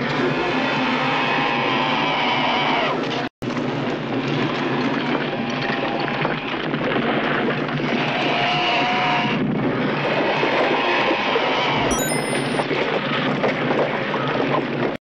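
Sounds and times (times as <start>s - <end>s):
held high tone: 11.9s - 12.6s.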